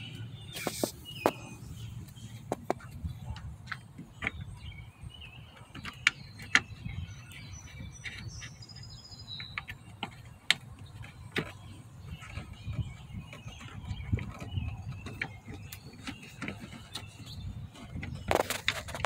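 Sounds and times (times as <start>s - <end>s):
clicks and taps on plastic housing: 2.4s - 4.7s, 5.5s - 8.5s, 9.4s - 19.0s.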